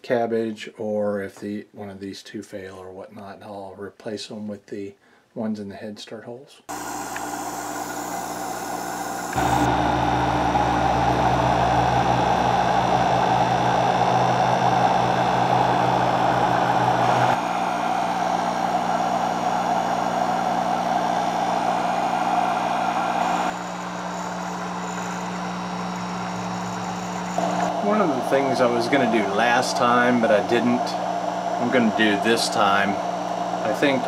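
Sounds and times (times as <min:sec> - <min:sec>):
mechanical hum and hiss: 0:06.7 - 0:18.3, 0:21.0 - 0:34.0.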